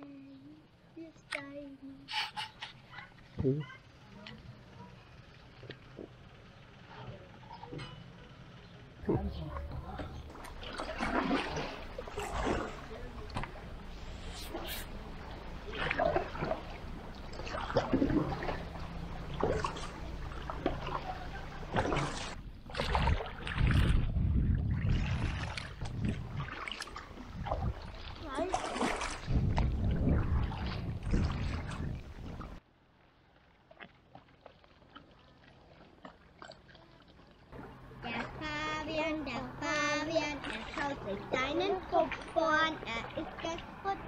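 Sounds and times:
motorboat engine hum: 0:00.0 - 0:44.0
kayak paddle splashing water: 0:09.6 - 0:38.3, 0:40.1 - 0:44.0
wind rumble on microphone: 0:22.3 - 0:32.6
faint water drips: 0:33.6 - 0:39.4
child singing: 0:38.2 - 0:44.0.

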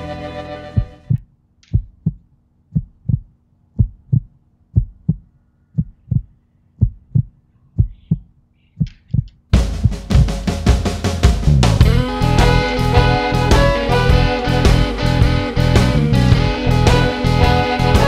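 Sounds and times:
music: 0:00.0 - 0:01.1, 0:09.5 - 0:18.0
heartbeat thumps: 0:00.8 - 0:12.1.

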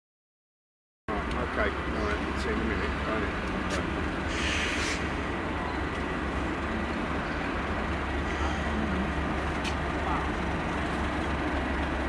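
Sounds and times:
diesel locomotive engine rumbling: 0:01.1 - 0:12.0
brief hiss: 0:04.3 - 0:05.2.

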